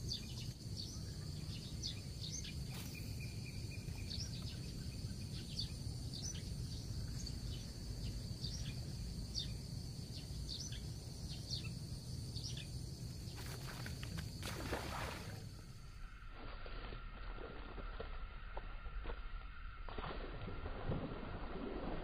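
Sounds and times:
bird chirping: 0.0s - 13.5s
high insect drone: 0.0s - 21.7s.

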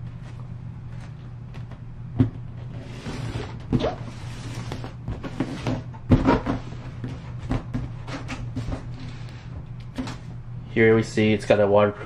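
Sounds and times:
low hum: 0.0s - 12.0s
cardboard scraping on table: 2.6s - 9.2s.

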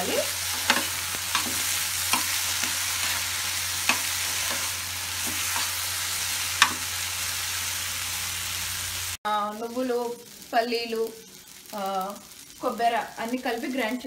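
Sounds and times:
vegetables sizzling in a frying pan: 0.0s - 14.0s
metal spoon scraping: 0.4s - 5.8s.

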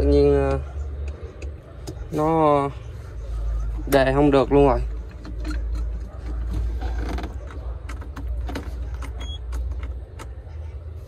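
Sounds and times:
clicks and knocks of tractor controls: 4.8s - 10.5s.

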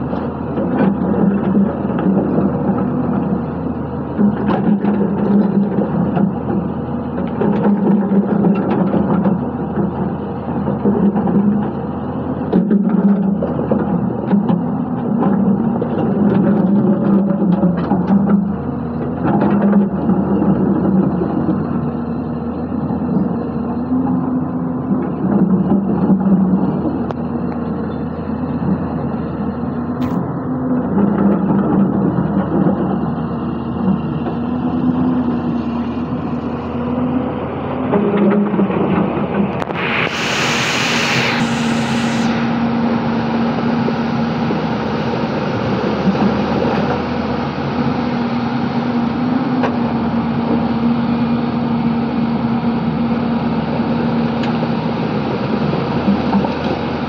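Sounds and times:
excavator diesel engine working: 0.0s - 57.0s
hydraulic hiss: 39.7s - 43.0s.

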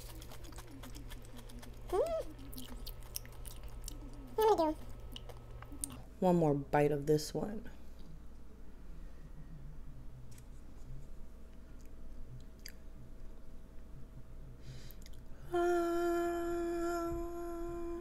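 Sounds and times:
person chewing: 0.0s - 6.0s
person humming mmm: 1.5s - 2.4s, 15.4s - 18.0s.

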